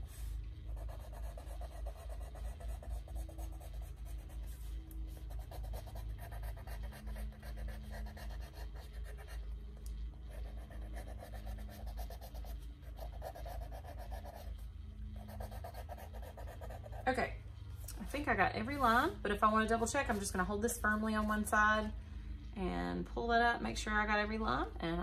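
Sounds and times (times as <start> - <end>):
pencil scratching on paper: 0.1 - 17.1.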